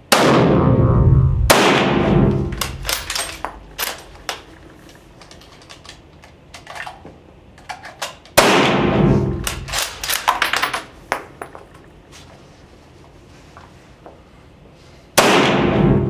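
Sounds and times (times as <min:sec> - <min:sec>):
rifle shot: 0:00.1 - 0:03.9, 0:08.4 - 0:10.2, 0:15.2 - 0:16.0
rifle bolt clicks and clacks: 0:02.6 - 0:07.0.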